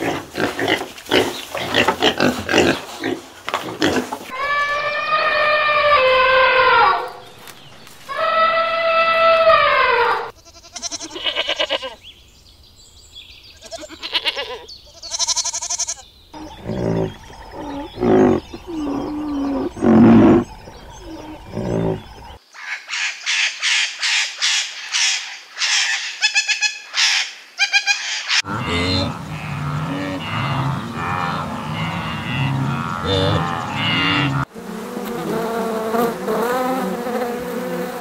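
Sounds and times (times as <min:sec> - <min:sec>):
deeper repeated animal calls: 0:03.8 - 0:07.3, 0:08.1 - 0:12.0, 0:13.6 - 0:22.4, 0:23.0 - 0:34.5
elephant calls: 0:04.3 - 0:07.2, 0:08.1 - 0:12.0, 0:15.2 - 0:22.4, 0:24.4 - 0:34.5
macaws squawking: 0:13.6 - 0:34.5.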